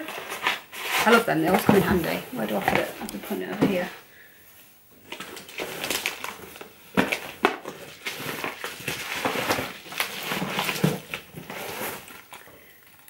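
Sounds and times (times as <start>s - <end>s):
wrapping paper crinkling: 5.0s - 13.0s.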